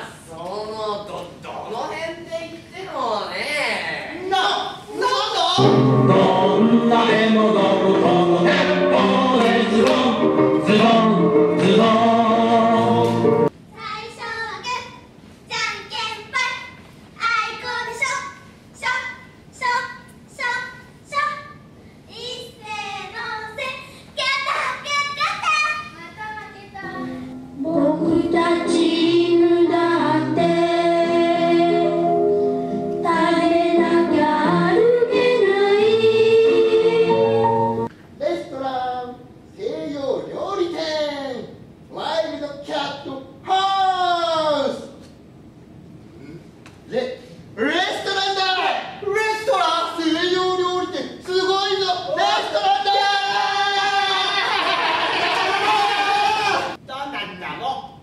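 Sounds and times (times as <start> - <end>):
chorus singing with music: 5.6 - 13.5, 27.0 - 37.9
instrumental accompaniment: 5.6 - 13.5, 26.8 - 37.9
children singing: 27.6 - 31.9.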